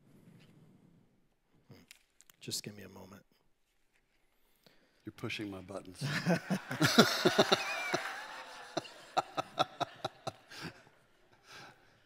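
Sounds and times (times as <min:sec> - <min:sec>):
man laughing: 0:06.0 - 0:10.8.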